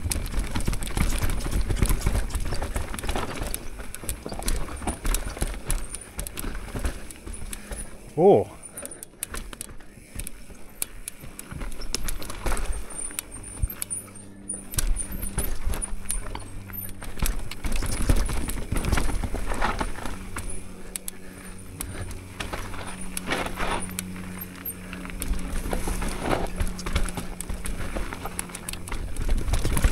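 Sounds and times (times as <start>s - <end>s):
bike chain and frame rattling: 0.0s - 29.9s
bike tyres crunching on dirt: 0.0s - 29.9s.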